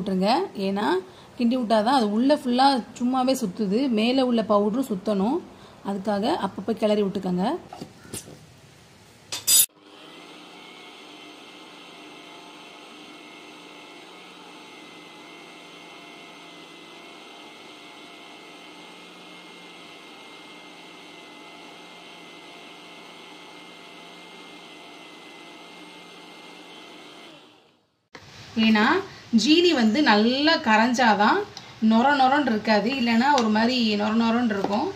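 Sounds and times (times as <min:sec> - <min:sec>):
mixer grinder running: 0:09.7 - 0:27.8, 0:31.9 - 0:34.9.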